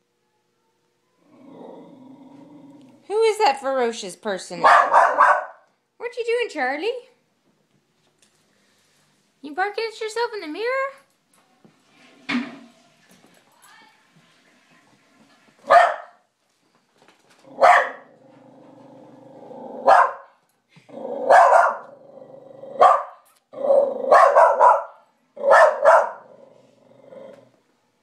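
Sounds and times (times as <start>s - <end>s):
dog growling: 1.2s - 3.1s, 17.4s - 20.0s, 20.8s - 22.9s, 23.5s - 24.3s, 25.4s - 27.6s
dog barking: 4.6s - 5.7s, 15.7s - 16.2s, 17.6s - 18.1s, 19.8s - 20.3s, 21.3s - 21.9s, 22.8s - 26.3s.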